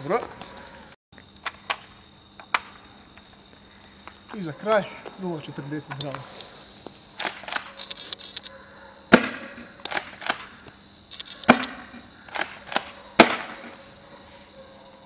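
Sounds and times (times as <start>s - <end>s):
shotgun pump clicks: 7.2s - 8.5s, 9.8s - 11.7s, 12.3s - 13.4s
airsoft shotgun shots: 9.1s - 10.6s, 11.4s - 13.8s.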